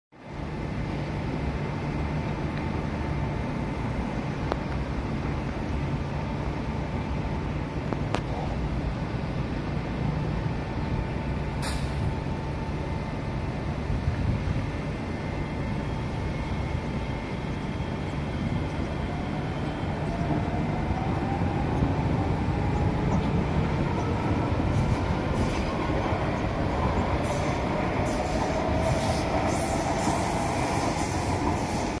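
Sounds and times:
train running noise: 0.2 - 32.0.

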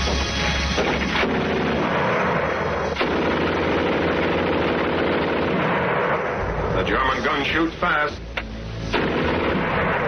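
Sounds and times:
machine gun firing rapidly: 0.8 - 6.1.

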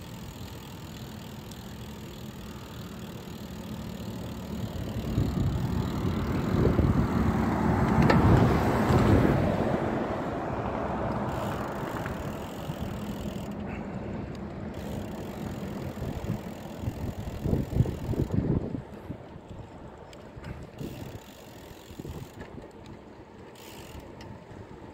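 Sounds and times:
road noise: 0.0 - 24.9
wind on microphone: 5.0 - 10.0, 15.9 - 21.2.

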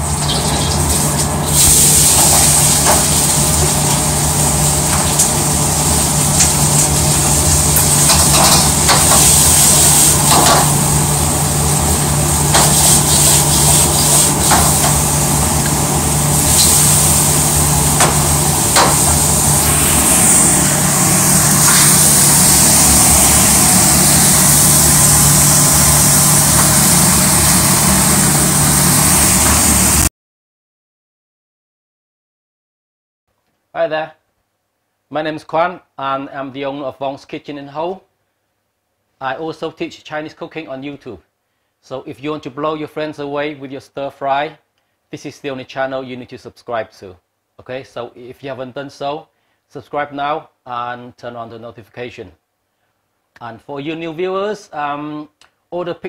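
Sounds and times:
loud humming mechanical noise: 0.0 - 30.1
sharp knocks and clatters: 10.3 - 10.7.

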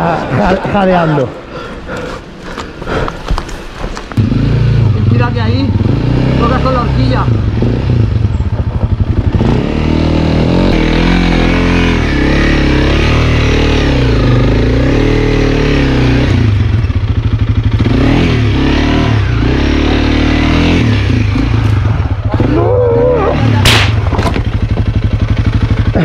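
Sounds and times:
motorcycle engine pulling at low revs: 4.2 - 26.0.

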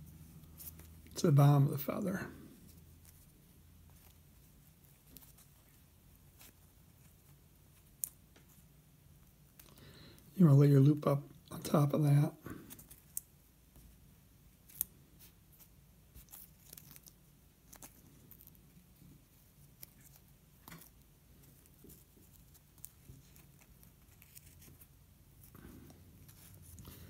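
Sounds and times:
tape crinkling and clicking: 4.8 - 8.7, 12.5 - 13.4, 14.6 - 25.7.

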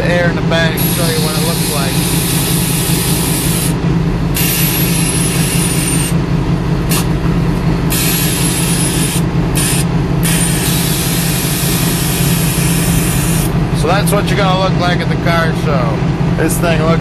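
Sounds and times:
air suspension hissing: 0.0 - 6.2, 6.8 - 7.2, 7.9 - 13.6
truck engine idling: 0.0 - 17.0.

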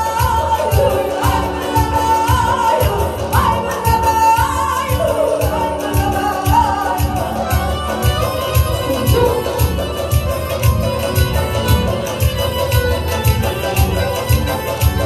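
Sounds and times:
woman singing into microphone: 0.0 - 10.4
accordion and keyboard chords: 0.0 - 15.0
steady drum beat: 0.0 - 15.0.

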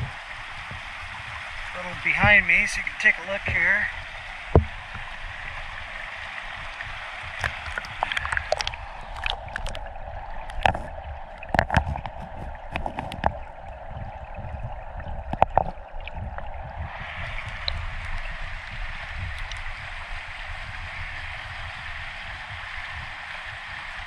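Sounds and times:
stream water flowing: 0.0 - 24.0
sharp clicks and knocks: 10.4 - 13.4, 15.3 - 15.8.

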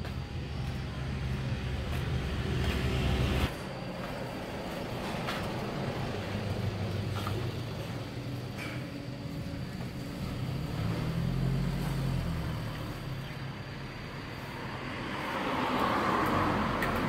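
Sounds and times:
road traffic passing: 0.0 - 17.0.

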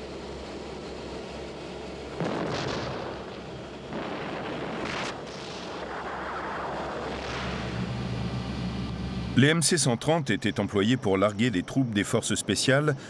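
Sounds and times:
steady low rumble: 0.0 - 11.0
heavy explosive blasts: 2.1 - 8.8
sharp crack: 2.2 - 7.9.

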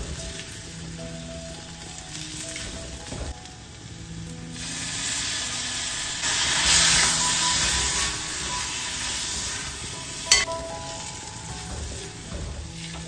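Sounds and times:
onion masala sizzling in a pan: 0.0 - 13.0
water poured into hot pan hissing: 0.0 - 13.0
steel spoon stirring and scraping: 6.4 - 13.0
spoon knocking on pan: 10.3 - 13.0.

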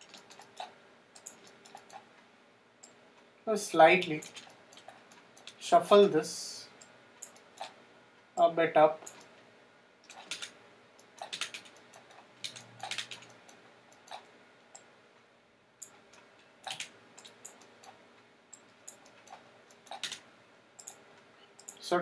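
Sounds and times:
mouse and keyboard clicks: 0.0 - 2.0, 10.1 - 14.9, 15.8 - 20.2, 20.8 - 21.0
faint steady hum: 0.0 - 22.0.

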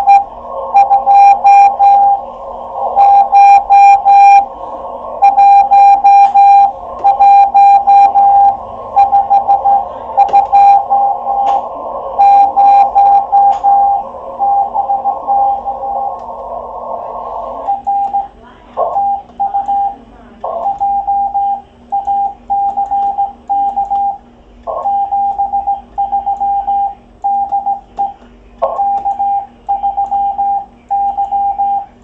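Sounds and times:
radio hiss: 0.0 - 19.4
morse code tone: 0.0 - 20.0.

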